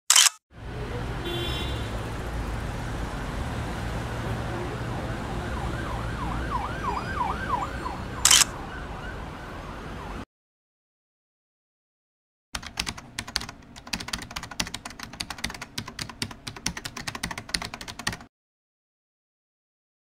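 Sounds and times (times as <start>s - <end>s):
traffic rumble: 0.5s - 10.2s
emergency siren wailing: 4.3s - 10.3s.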